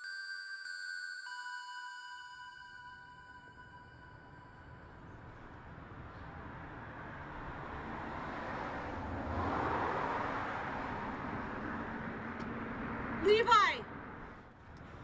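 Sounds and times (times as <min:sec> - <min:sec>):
traffic hum: 0:03.6 - 0:15.0
car passing: 0:04.1 - 0:15.0.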